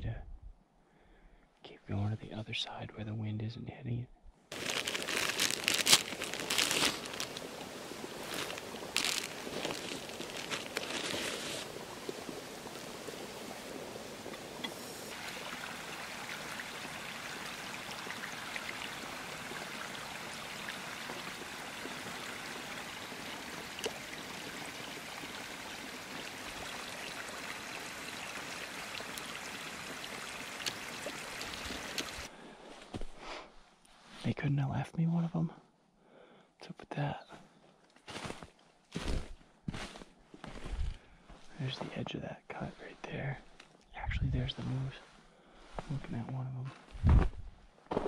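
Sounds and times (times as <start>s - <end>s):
plastic bag crinkling: 4.5s - 11.7s
brook trickling over rocks: 4.5s - 32.3s.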